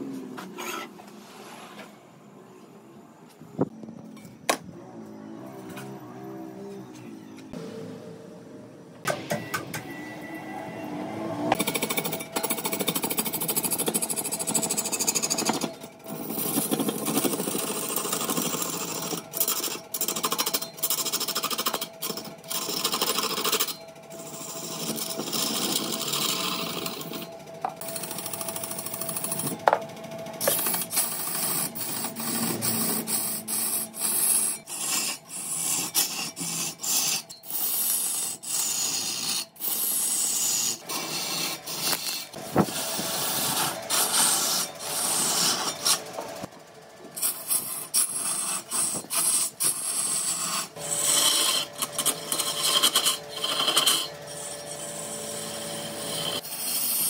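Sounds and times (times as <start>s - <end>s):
lathe motor hum: 9.6s - 57.0s
turning tool scraping wood: 11.5s - 29.8s, 30.4s - 46.5s, 47.1s - 57.0s.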